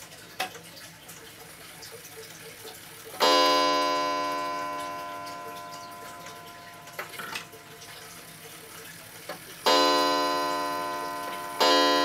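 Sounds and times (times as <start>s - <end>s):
wall clock striking: 3.2s - 7.8s, 9.6s - 12.0s.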